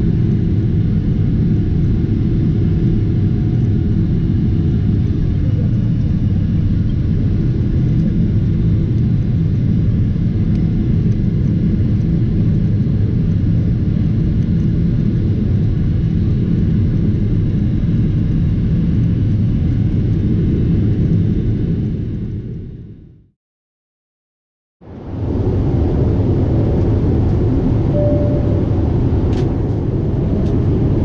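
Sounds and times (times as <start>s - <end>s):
jet engines rumbling: 24.9s - 31.0s.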